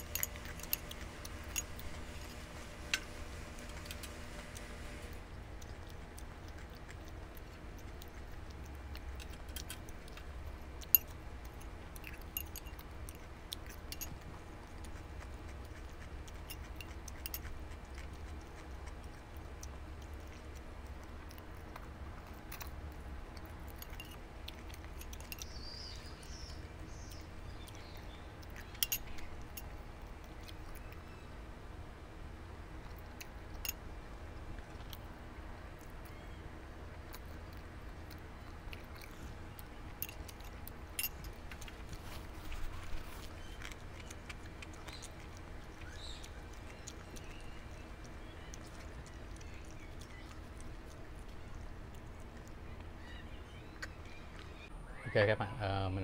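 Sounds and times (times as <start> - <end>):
utensils clicking on bowl: 0.0 - 3.0
soft chewing: 0.0 - 54.7.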